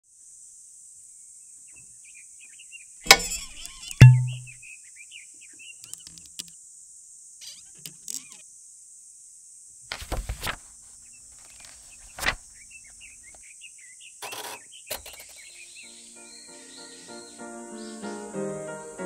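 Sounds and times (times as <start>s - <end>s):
rustling: 9.9s - 12.6s.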